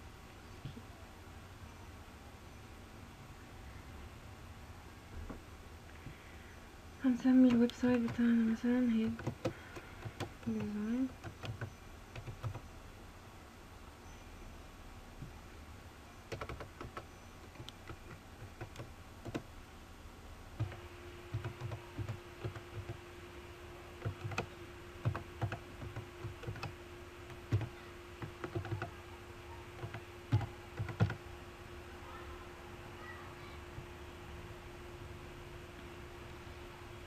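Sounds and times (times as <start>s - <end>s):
faint steady hum: 0.0s - 37.0s
keyboard key clicks: 16.3s - 19.5s.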